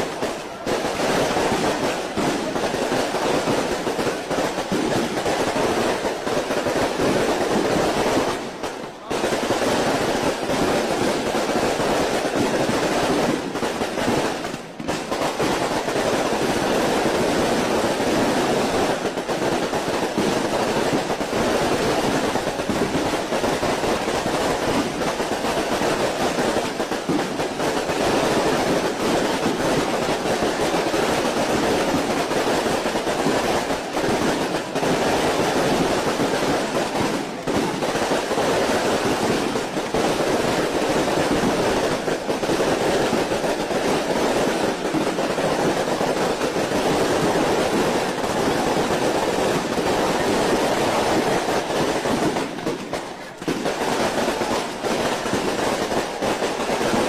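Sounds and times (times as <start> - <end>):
firecrackers crackling and popping: 0.0 - 57.0.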